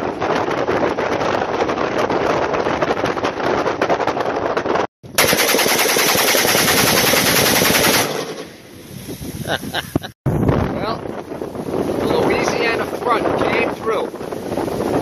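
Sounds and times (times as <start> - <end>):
wind buffeting microphone: 0.0 - 15.0
rapid rifle shots: 5.1 - 8.6.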